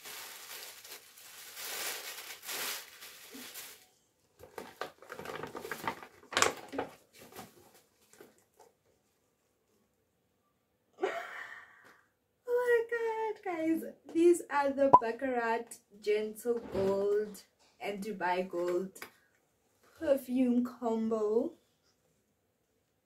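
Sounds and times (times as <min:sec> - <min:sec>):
gift wrapping paper rustling: 0:00.0 - 0:08.7.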